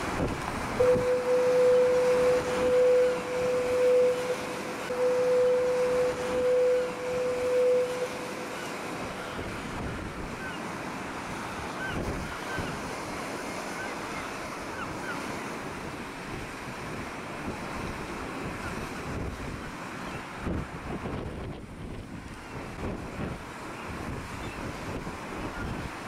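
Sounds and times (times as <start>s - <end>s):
wind buffeting microphone: 0.0s - 8.1s, 8.9s - 13.7s, 15.6s - 26.0s
rough sea surf breaking: 0.0s - 26.0s
faint seabird calls: 0.8s - 15.6s.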